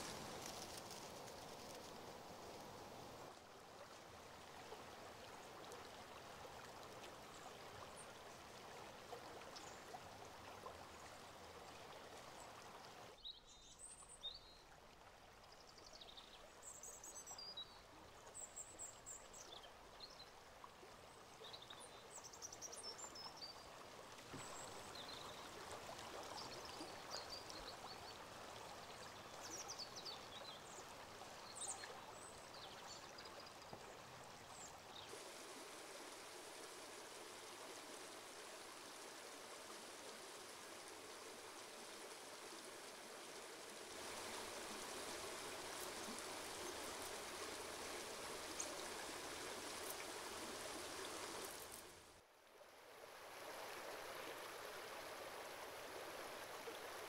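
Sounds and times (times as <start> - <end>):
river running over rocks: 0.0 - 7.0, 24.0 - 52.2.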